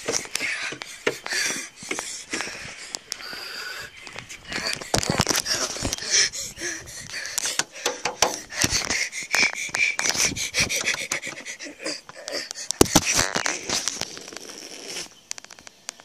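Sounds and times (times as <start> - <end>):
person panting: 0.0 - 13.0
phone rubbing and knocking: 7.5 - 8.8.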